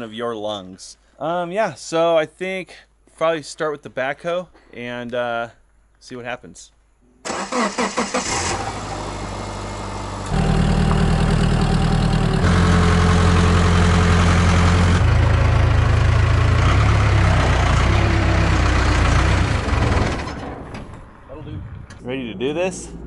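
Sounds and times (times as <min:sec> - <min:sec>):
diesel engine cranking and running: 0:07.3 - 0:21.1.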